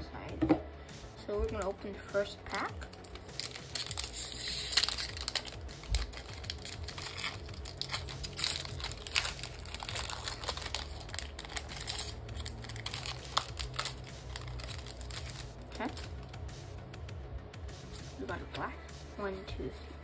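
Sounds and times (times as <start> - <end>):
foil wrapper crinkling: 2.5 - 16.2.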